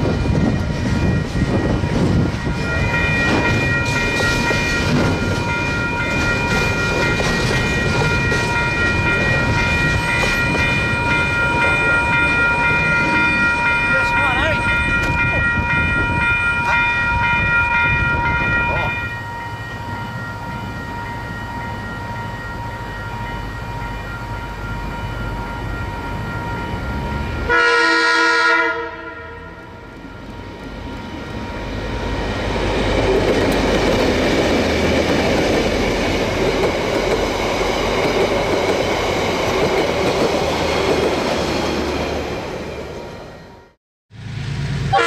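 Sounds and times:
rail clatter: 0:00.0 - 0:19.1, 0:29.9 - 0:42.8
locomotive engines and wheels: 0:00.0 - 0:27.8, 0:29.5 - 0:45.0
multi-note locomotive horn: 0:27.4 - 0:30.0, 0:44.8 - 0:45.0.

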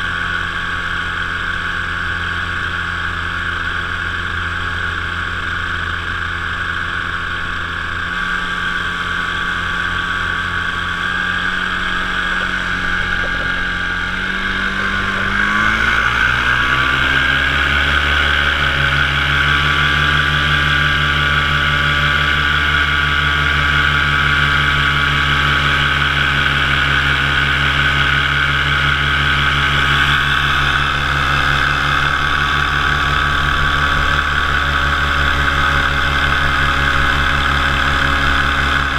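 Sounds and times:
paramotor engine and propeller running: 0:00.0 - 0:38.9.

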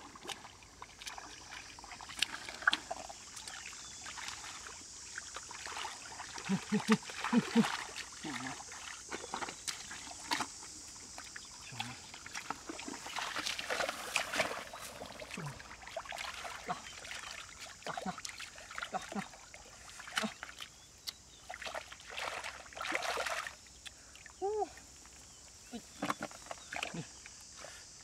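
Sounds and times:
hands squelching through mud: 0:00.0 - 0:04.5
water sloshing: 0:00.0 - 0:23.8.

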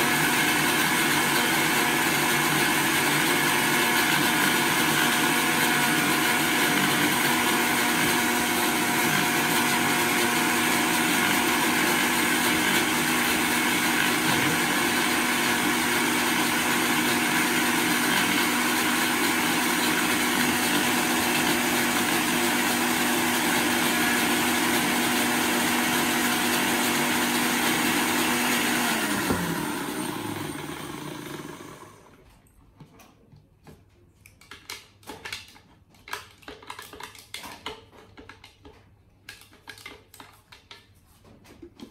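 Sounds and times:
blender motor running: 0:00.0 - 0:32.2.

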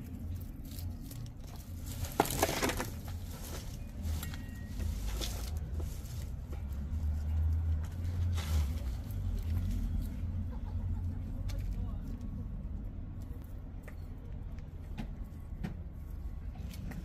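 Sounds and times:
crackling scrape: 0:00.0 - 0:10.5
hands rustling through soil: 0:00.0 - 0:12.4
low steady rumble: 0:00.0 - 0:17.0.

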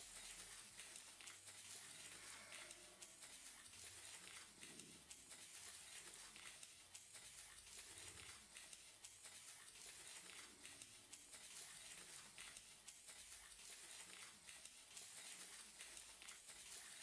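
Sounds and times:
soft ticks: 0:00.2 - 0:17.0.

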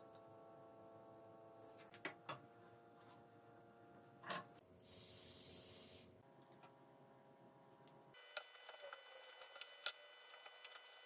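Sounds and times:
aerosol spray hiss: 0:04.8 - 0:06.1.

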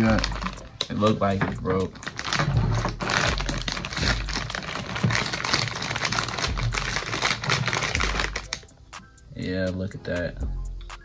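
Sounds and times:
plastic bag crinkling: 0:00.0 - 0:08.6.

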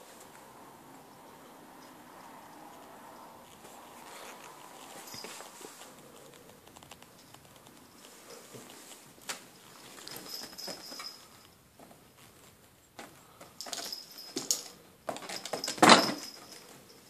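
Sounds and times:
kitten claws scratching: 0:02.5 - 0:10.8.

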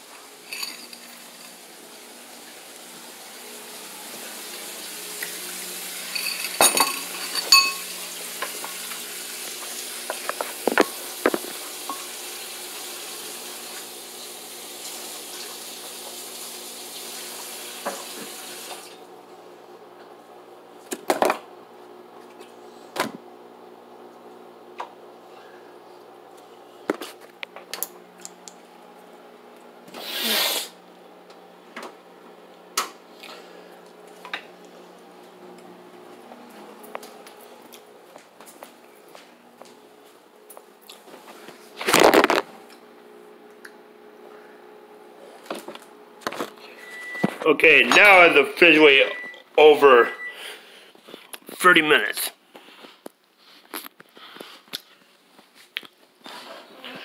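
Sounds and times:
pots and cutlery clinking: 0:00.4 - 0:01.6, 0:06.1 - 0:08.7
dishes clattering: 0:06.1 - 0:08.6.

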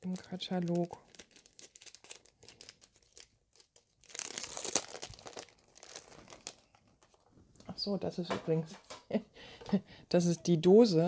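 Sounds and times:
plastic packaging crinkling: 0:00.0 - 0:07.3.

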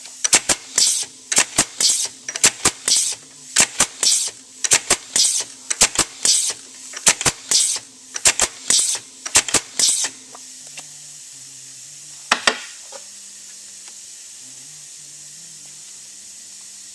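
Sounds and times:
pneumatic cylinder clicks: 0:00.0 - 0:10.2
compressed air hiss: 0:00.0 - 0:16.9
exhaust air bursts: 0:00.0 - 0:16.9.

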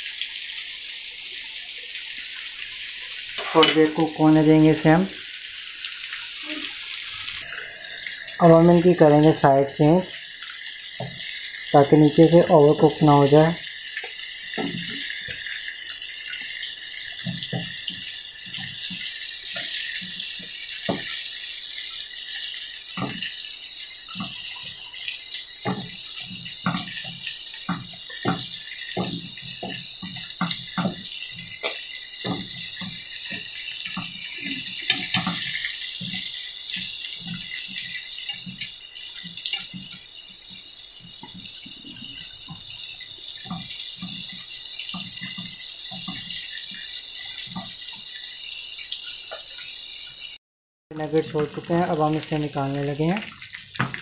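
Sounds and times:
food sizzling in oil: 0:00.0 - 0:50.4
utensils tapping and clicking: 0:25.6 - 0:40.6.

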